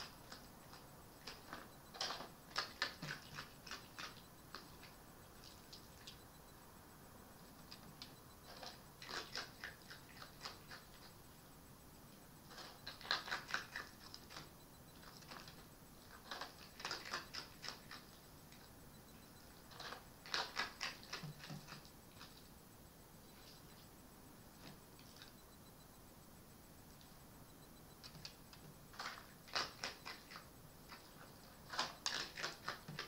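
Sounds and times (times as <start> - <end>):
fox crunching food: 0.0 - 6.2, 7.6 - 11.2, 12.5 - 18.6, 19.4 - 22.6, 28.0 - 33.0.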